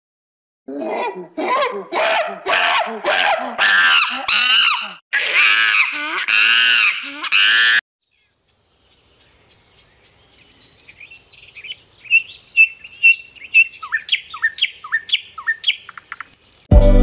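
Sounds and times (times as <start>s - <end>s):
songbird singing: 8.0s - 16.7s
music: 16.7s - 17.0s.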